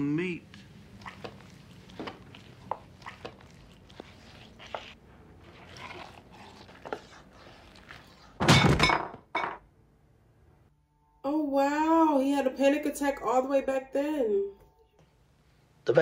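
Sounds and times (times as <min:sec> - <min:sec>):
crash and thud at table: 0:08.4 - 0:09.6.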